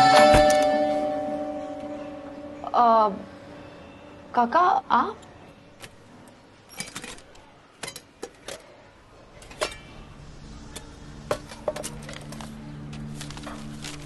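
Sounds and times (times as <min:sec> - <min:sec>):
soft background music: 0:00.0 - 0:05.9.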